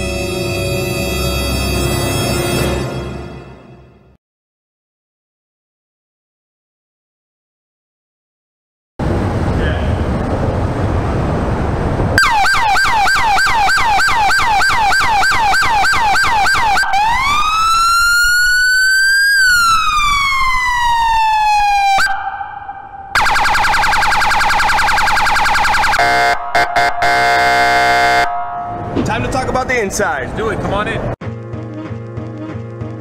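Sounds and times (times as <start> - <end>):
siren horn blasts: 0.0 - 3.4, 12.2 - 29.1
police siren wail: 12.2 - 29.0
police siren yelp: 12.2 - 29.0
rapid siren warble: 12.2 - 29.0.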